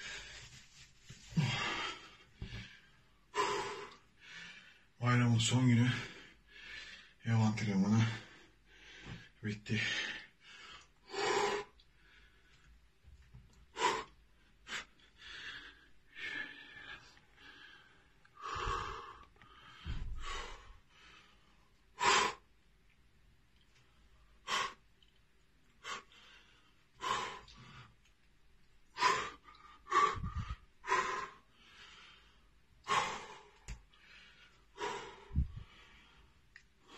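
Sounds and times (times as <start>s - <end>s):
man breathing heavily: 0.0s - 5.0s, 5.8s - 7.2s, 7.8s - 12.8s, 13.6s - 22.5s, 23.9s - 24.9s, 25.7s - 28.1s, 28.8s - 36.9s.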